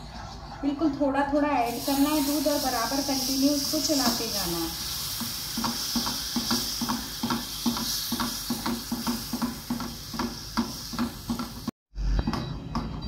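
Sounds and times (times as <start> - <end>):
pan sizzling: 1.6 - 11.8.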